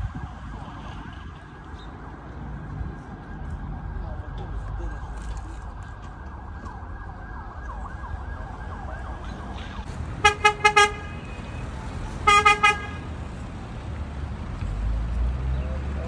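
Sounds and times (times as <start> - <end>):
horn beeping short toots: 12.3 - 13.0.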